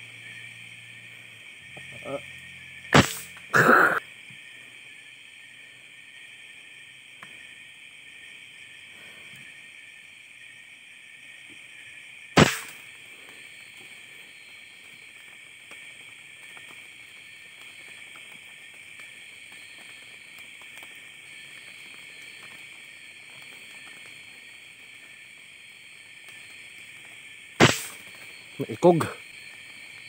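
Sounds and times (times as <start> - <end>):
crickets and night insects chirping: 0.0 - 30.0
air rifle shot: 2.9 - 4.0, 12.4 - 12.8, 27.6 - 28.0.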